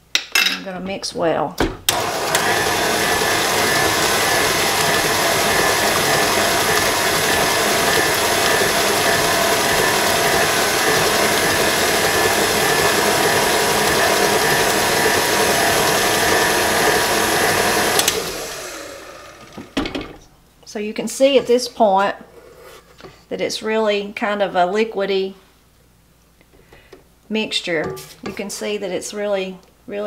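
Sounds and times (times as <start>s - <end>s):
stand mixer motor running: 1.9s - 19.8s.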